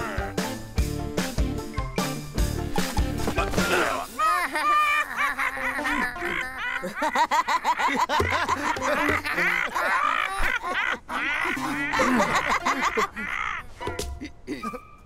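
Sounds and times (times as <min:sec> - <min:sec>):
cartoon crows cackling: 0:03.9 - 0:13.8.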